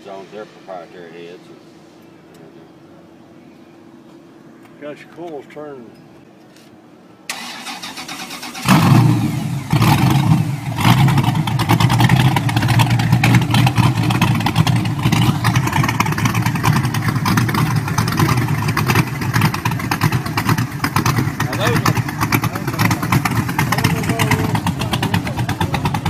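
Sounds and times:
engine revving and idling: 8.2 - 26.0.

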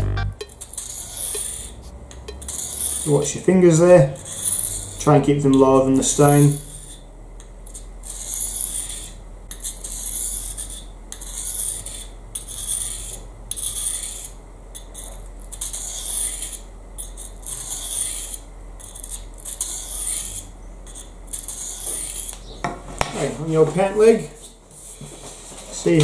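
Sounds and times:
knife blade rasping on whetstone: 0.5 - 5.1, 6.0 - 7.1, 7.7 - 22.5.

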